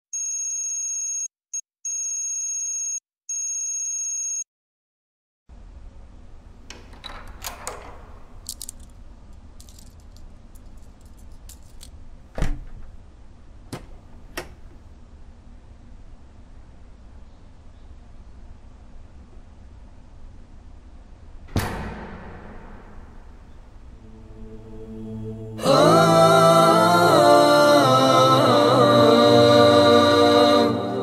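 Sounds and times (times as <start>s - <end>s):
low room hum: 5.5s - 31.0s
knocks and clicks: 21.5s - 24.0s
thump: 21.5s - 24.0s.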